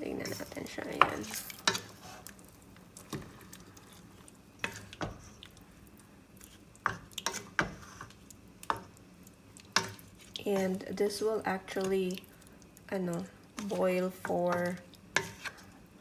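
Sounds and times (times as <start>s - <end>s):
spatula scraping a pot: 6.5s - 8.2s, 13.6s - 15.8s.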